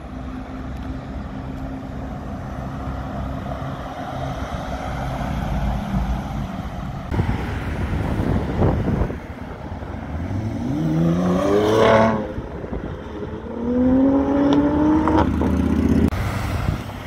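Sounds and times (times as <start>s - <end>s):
wind on microphone: 7.0s - 17.0s.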